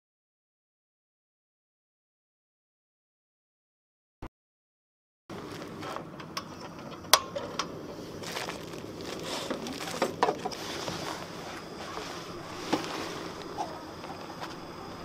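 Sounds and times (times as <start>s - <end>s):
gas burner hissing: 5.3s - 15.0s
foil bag rustling: 8.0s - 14.8s.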